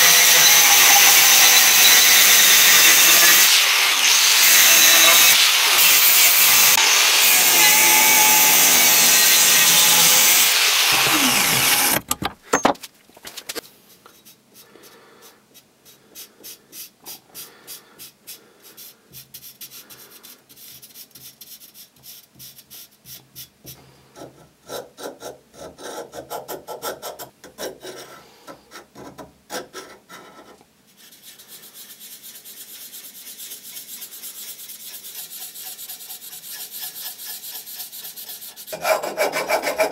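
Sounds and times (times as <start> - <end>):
angle grinder cutting steel: 0.0 - 12.2
marker scratching on steel: 14.1 - 23.5, 29.5 - 39.7.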